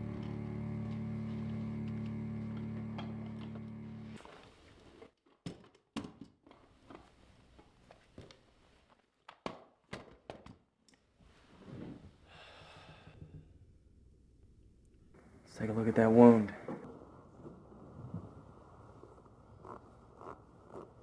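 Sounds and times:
music: 0:00.0 - 0:04.2
soft breath: 0:12.2 - 0:13.5.

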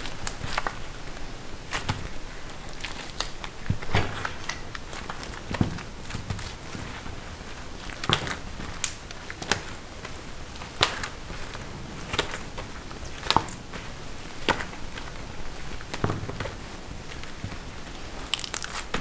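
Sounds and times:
hard candy clicking: 0:07.8 - 0:19.0.

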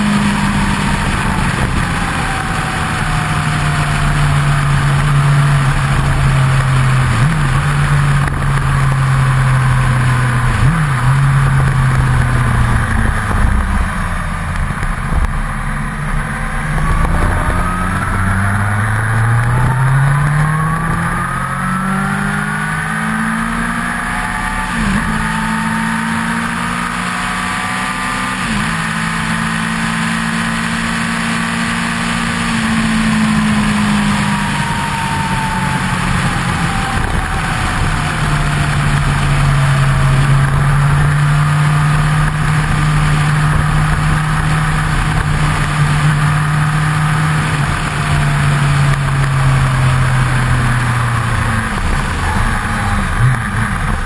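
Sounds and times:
motorcycle engine: 0:00.0 - 0:54.0
wind rush: 0:10.7 - 0:22.0.

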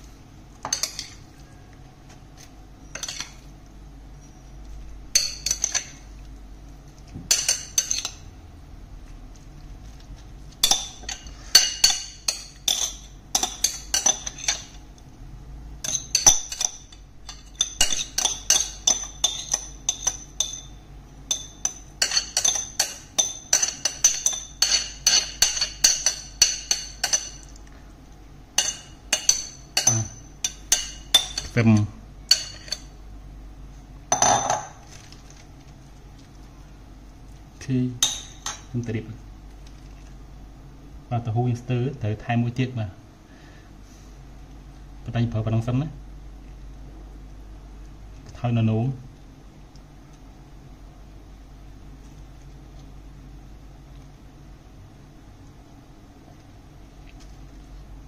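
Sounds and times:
metal spoon clinking on plate: 0:15.8 - 0:27.5, 0:28.6 - 0:31.6.

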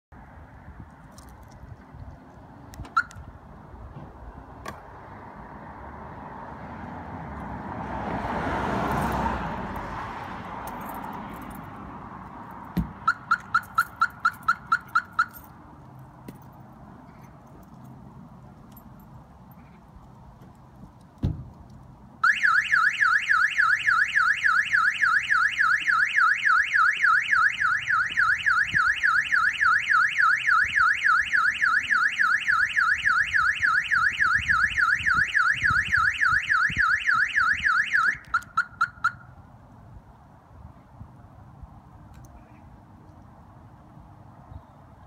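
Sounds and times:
thump: 0:12.7 - 0:13.0, 0:21.2 - 0:21.5
car alarm siren warbling: 0:13.0 - 0:15.4, 0:22.2 - 0:39.3.

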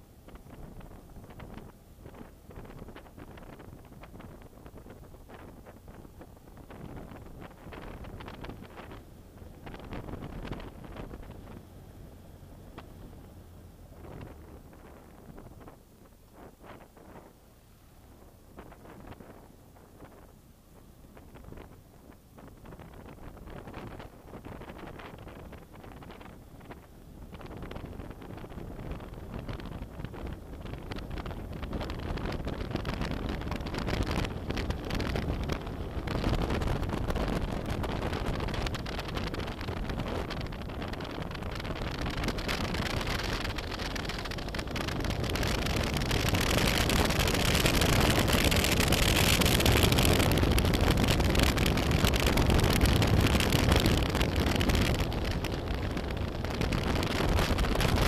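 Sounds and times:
wind rushing over microphone: 0:00.0 - 0:58.0
motorcycle engine riding: 0:00.2 - 0:58.0.

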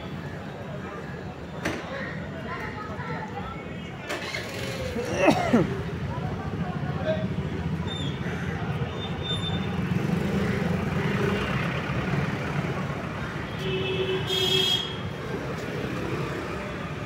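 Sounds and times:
road traffic passing: 0:00.0 - 0:17.0.

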